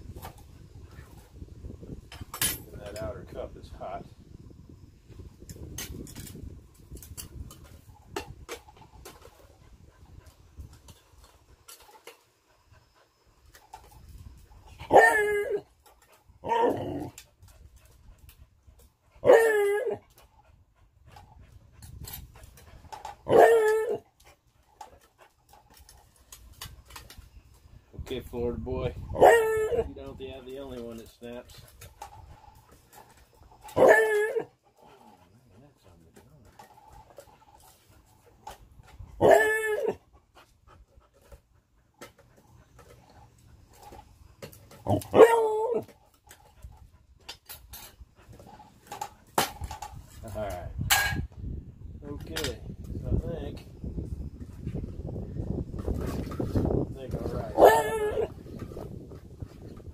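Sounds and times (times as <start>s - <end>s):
dog crying: 14.9s - 15.7s, 19.2s - 20.0s, 23.3s - 24.0s, 29.2s - 29.9s, 33.8s - 34.5s, 39.2s - 40.0s, 44.9s - 45.9s, 57.6s - 58.3s.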